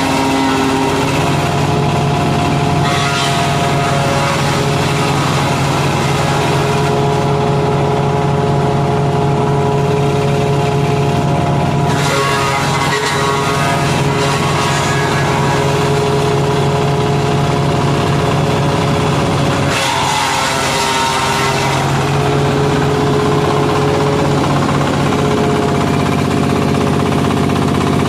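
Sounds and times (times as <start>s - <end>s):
wood chipper engine running: 0.0s - 28.0s
branches being shredded: 19.7s - 22.4s.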